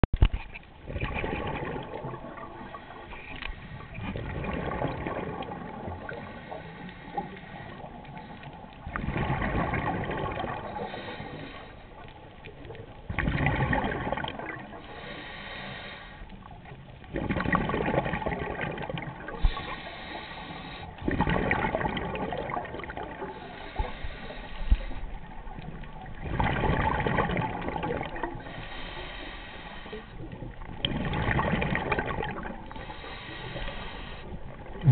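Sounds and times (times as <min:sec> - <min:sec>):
exhaled bubbles rushing: 0:00.8 - 0:06.6, 0:07.2 - 0:11.4, 0:12.6 - 0:14.8, 0:17.0 - 0:19.8, 0:20.9 - 0:23.7, 0:25.1 - 0:28.6, 0:30.2 - 0:33.6, 0:34.2 - 0:34.9
regulator hiss: 0:32.8 - 0:34.4.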